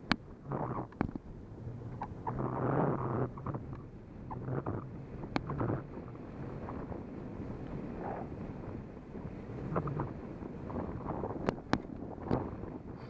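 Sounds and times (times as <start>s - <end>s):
low steady hum: 0.0s - 13.0s
wind buffeting microphone: 0.0s - 13.0s.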